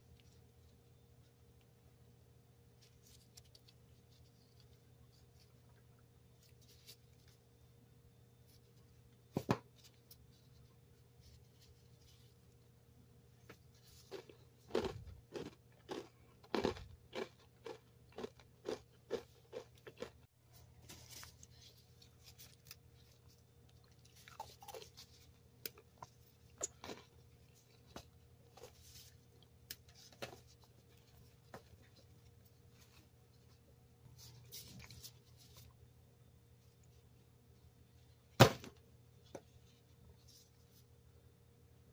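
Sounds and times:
granola bar crunching: 13.6s - 20.2s, 20.9s - 32.0s.

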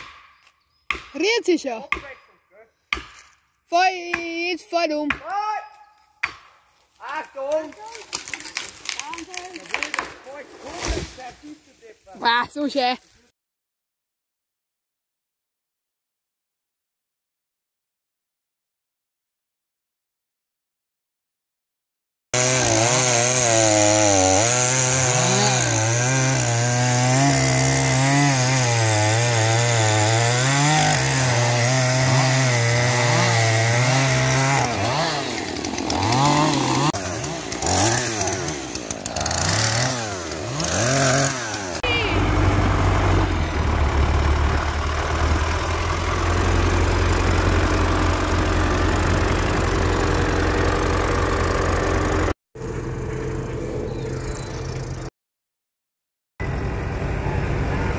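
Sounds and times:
chainsaw cutting log: 0.0s - 2.2s, 7.3s - 11.3s, 22.4s - 52.4s.

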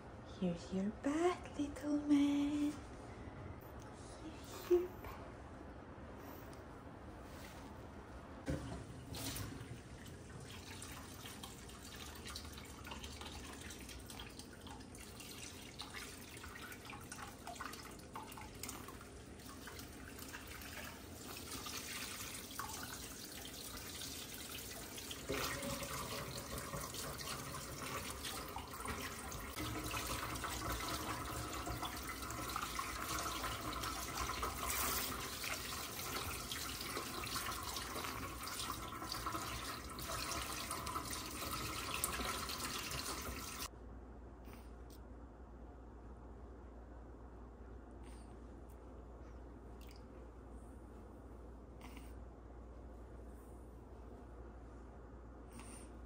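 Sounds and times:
water splashing into sink: 8.5s - 43.7s.

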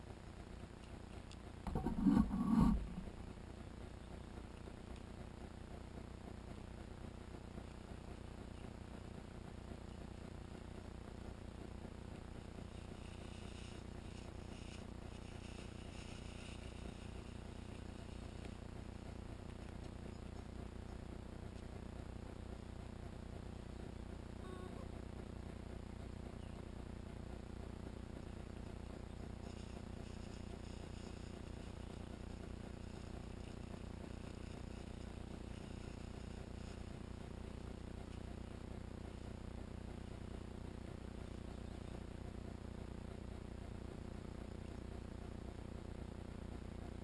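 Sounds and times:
low outdoor hum: 0.0s - 47.0s
faint high-pitched buzz: 8.0s - 47.0s
faint insect chirring: 29.0s - 38.2s.

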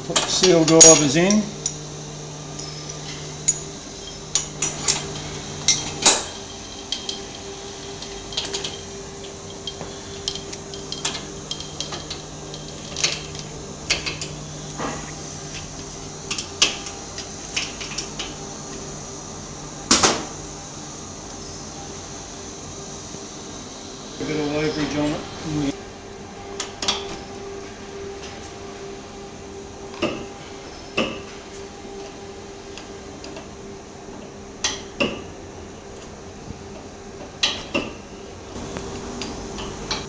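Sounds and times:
low steady hum: 0.0s - 40.0s
tools clinking on metal: 0.1s - 1.8s, 2.6s - 15.7s.

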